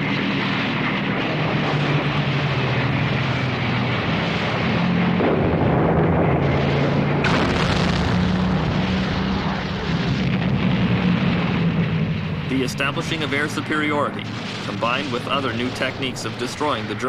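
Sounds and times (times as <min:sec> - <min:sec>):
propeller aircraft engines droning: 0:00.0 - 0:17.0
rushing explosion noise: 0:05.2 - 0:12.1, 0:12.8 - 0:17.0
sharp blast: 0:06.4 - 0:17.0.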